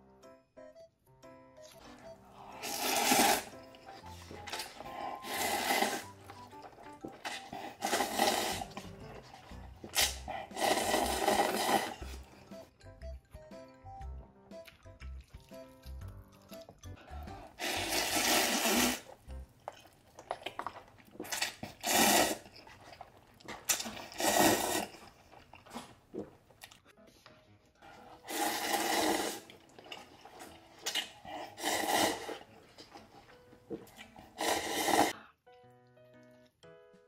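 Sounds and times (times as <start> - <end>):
background music: 0.0 - 25.5, 26.6 - 37.0
mouth and chopstick noises: 1.7 - 12.6, 14.5 - 26.8, 27.9 - 35.2
person slurping noodles: 2.3 - 12.4, 17.5 - 19.2, 21.2 - 23.0, 23.6 - 26.0, 28.0 - 33.2, 33.9 - 35.2.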